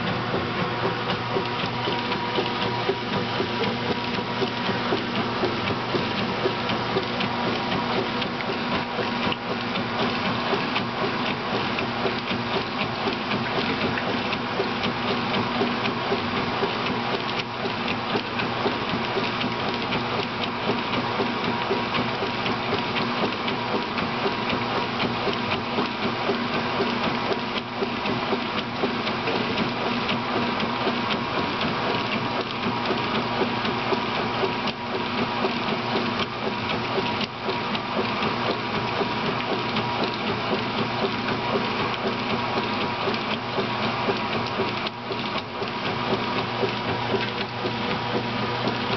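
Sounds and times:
agitator churning clothes in water: 0.0s - 48.9s
washing machine motor humming: 0.0s - 48.9s.

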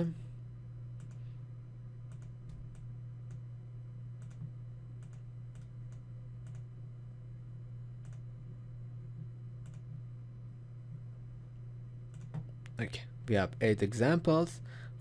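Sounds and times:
steady low hum: 0.0s - 15.0s
computer mouse clicking: 1.0s - 1.2s, 2.1s - 3.4s, 4.2s - 6.7s, 8.0s - 8.2s, 9.6s - 10.0s, 12.1s - 12.5s.

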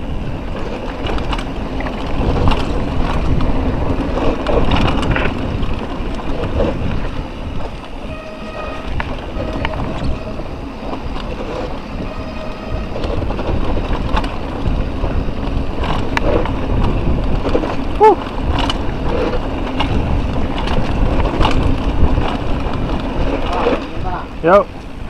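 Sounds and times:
mountain bike rattling: 0.0s - 25.0s
wind on microphone: 0.0s - 25.0s
tyres rumbling over stones: 0.3s - 8.0s, 9.1s - 24.6s
bike clicks and knocks: 0.4s - 8.0s, 12.8s - 24.1s
short pitched squeal: 8.0s - 10.6s, 11.6s - 13.1s.

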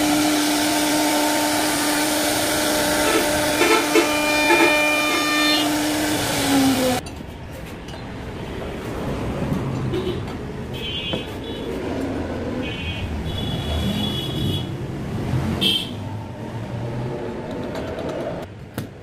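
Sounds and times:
router spindle whining: 0.0s - 7.0s.

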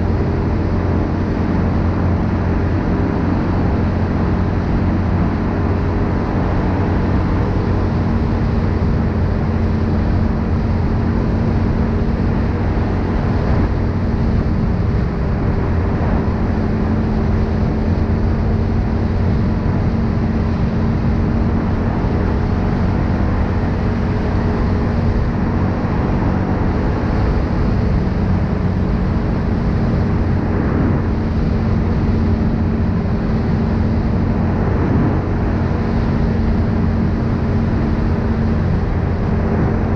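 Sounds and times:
atv engine cruising: 0.0s - 39.9s
wind on microphone: 0.0s - 39.9s.

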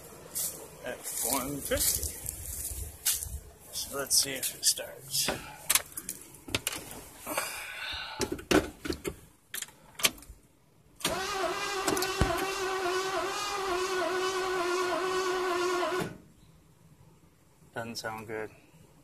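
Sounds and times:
starter motor cranking engine: 11.0s - 16.1s.

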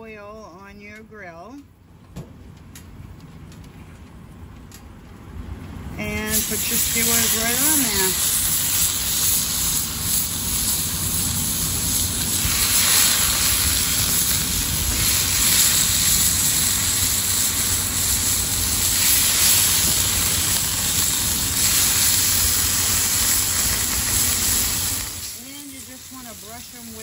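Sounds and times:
skewers sizzling on a griddle: 6.0s - 27.0s.

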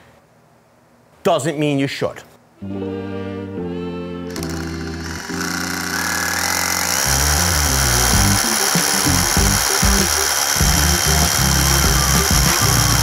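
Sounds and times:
background music: 2.6s - 13.0s
rotary hammer drilling into concrete: 4.3s - 13.0s.

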